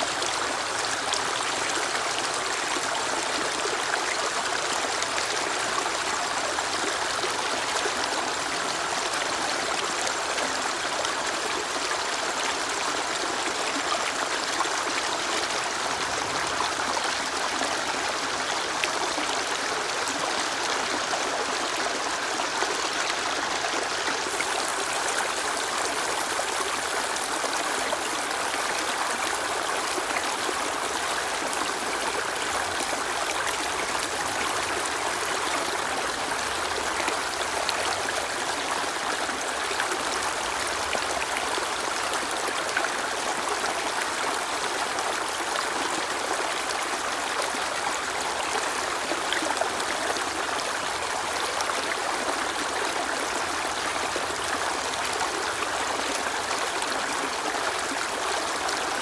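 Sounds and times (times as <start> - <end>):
stream rushing over boulders: 0.0 - 59.0.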